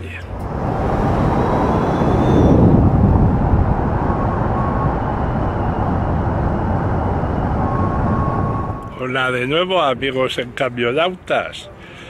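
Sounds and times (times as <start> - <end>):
truck tyre and road noise: 0.0 - 12.0.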